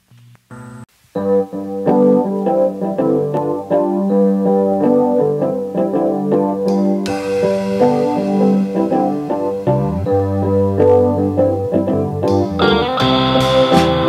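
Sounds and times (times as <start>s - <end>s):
digital piano playing: 0.5s - 14.0s
bright hiss-like wash: 6.7s - 11.7s.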